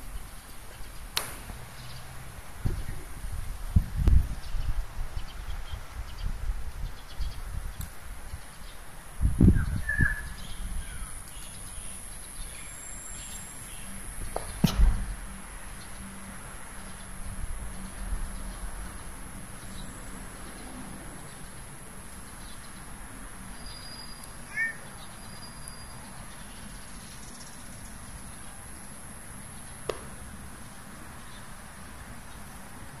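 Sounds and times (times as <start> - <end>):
wind rumbling on microphone: 0.0 - 12.6, 13.3 - 23.6
outdoor background noise: 0.0 - 33.0
bird chirp: 9.4 - 15.2, 23.6 - 28.6.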